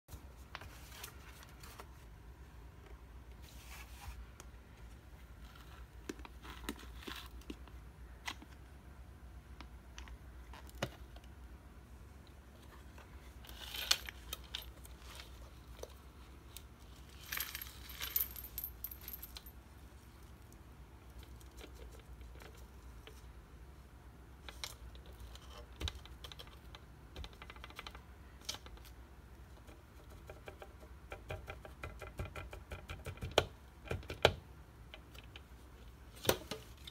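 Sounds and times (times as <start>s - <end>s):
coins clinking and rattling: 16.9s - 19.6s.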